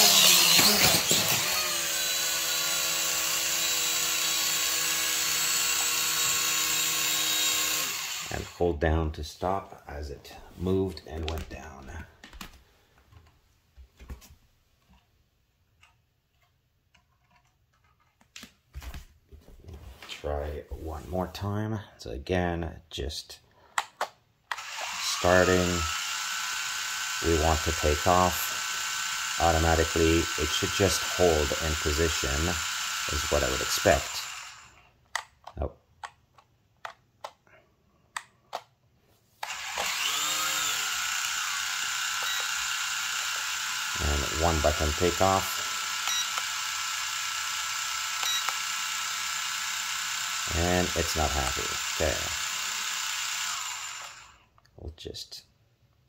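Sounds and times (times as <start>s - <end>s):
bare feet on wooden floor: 10.4s - 15.0s, 18.3s - 21.2s.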